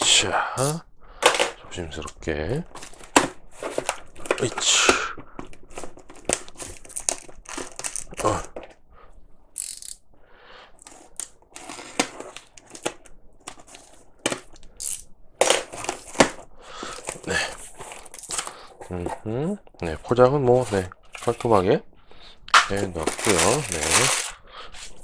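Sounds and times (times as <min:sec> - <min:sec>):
tape crackling and rustling: 0:01.2 - 0:08.8, 0:10.8 - 0:19.2, 0:20.5 - 0:21.7, 0:22.5 - 0:25.0
cardboard rustling: 0:02.6 - 0:08.8, 0:15.4 - 0:19.2, 0:22.6 - 0:25.0.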